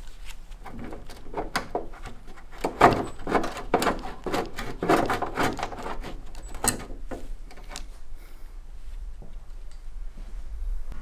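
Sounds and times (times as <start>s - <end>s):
clatter of tools and car parts: 0.6s - 7.9s.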